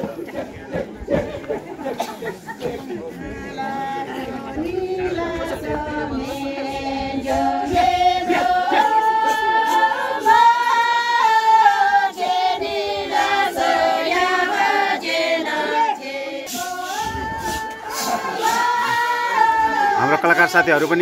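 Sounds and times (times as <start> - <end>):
women singing unaccompanied: 3.5 - 20.3.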